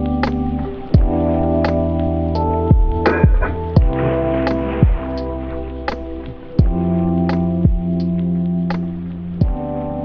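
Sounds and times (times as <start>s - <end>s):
held electronic chords: 0.0s - 10.0s
deep falling bass hit: 2.7s - 7.0s.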